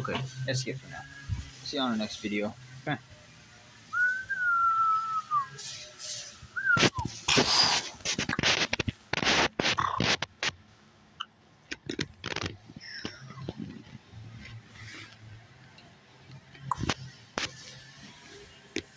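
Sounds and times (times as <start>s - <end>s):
camera handling scraping and rubbing: 5.6s - 10.6s, 11.7s - 15.3s
faint rustles and clicks: 5.6s - 10.7s, 11.6s - 18.9s.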